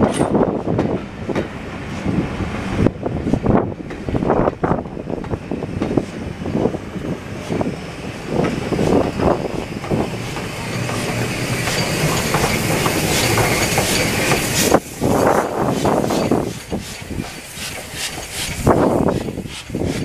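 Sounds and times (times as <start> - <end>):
steady train rumble: 0.0 - 20.0
train wheels clacking on rails: 0.0 - 20.0
steam hiss: 5.8 - 20.0.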